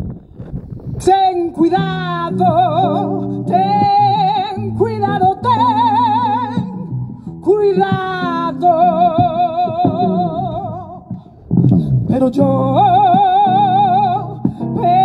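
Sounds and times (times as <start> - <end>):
guitar accompaniment: 1.0 - 15.0
woman singing with vibrato: 1.0 - 15.0.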